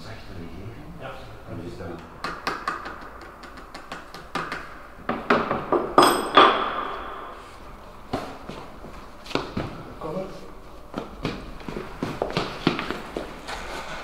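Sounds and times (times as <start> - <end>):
sharp knocks and taps: 2.0 - 6.7
metallic clink: 6.0 - 6.9.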